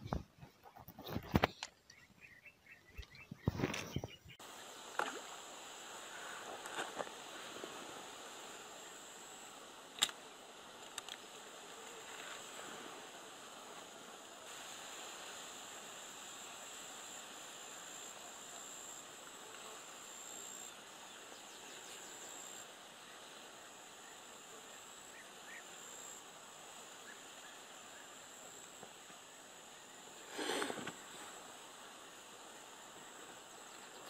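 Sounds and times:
insects chirring: 0.0 - 34.0
faint hiss: 1.2 - 34.0
faint ticks: 10.8 - 12.4.

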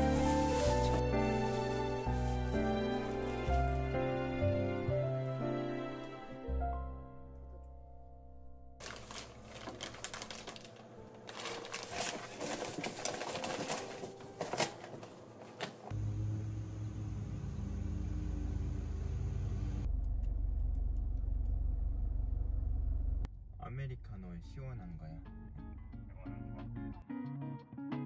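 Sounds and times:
plastic packaging crinkling: 0.0 - 3.5, 8.8 - 15.9.

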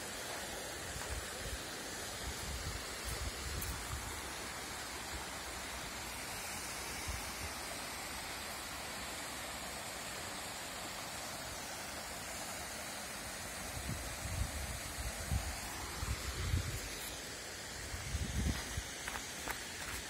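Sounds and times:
wind rumble on microphone: 17.9 - 19.2.

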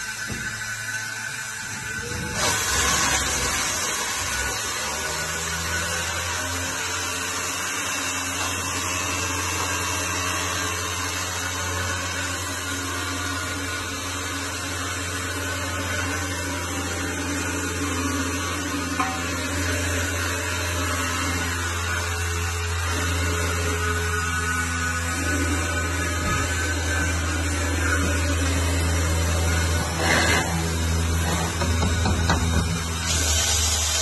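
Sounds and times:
electric motor humming: 0.0 - 34.0.

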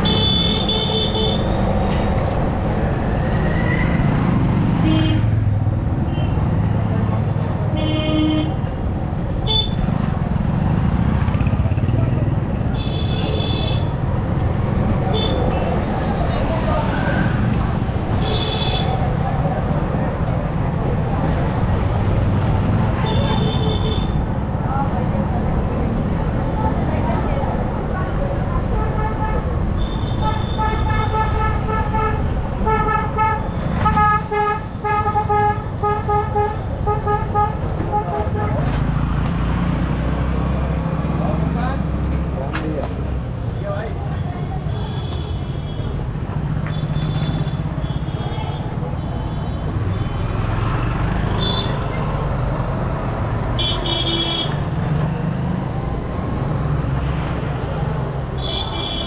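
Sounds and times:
vehicle horn beeping: 0.0 - 1.5, 51.4 - 51.8, 53.6 - 54.7, 58.4 - 59.0
motorcycle engine and road rumble: 0.0 - 59.0
street traffic: 0.0 - 59.0
motorcycle rumble: 8.5 - 23.4
horns honking: 53.6 - 54.8, 58.4 - 59.0.

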